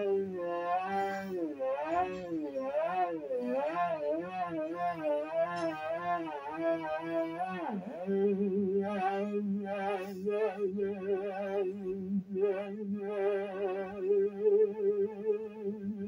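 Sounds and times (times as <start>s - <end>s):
theremin wavering tone: 0.0s - 16.0s.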